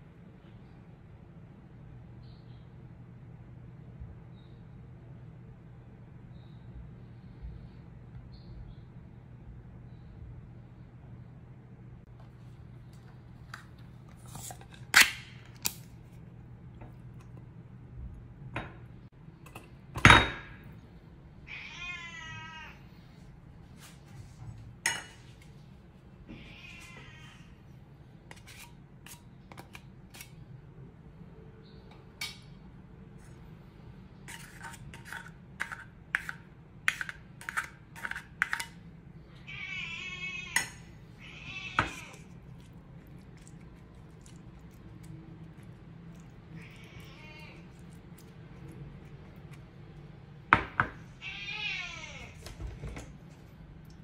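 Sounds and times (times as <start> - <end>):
cat meowing: 21.5 - 22.8, 26.3 - 27.6, 39.4 - 42.4, 46.5 - 47.9, 51.2 - 52.4.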